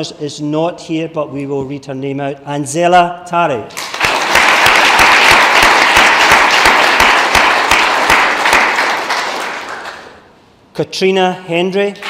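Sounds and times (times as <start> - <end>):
audience applauding: 3.7 - 10.2
sharp individual claps: 3.7 - 10.3.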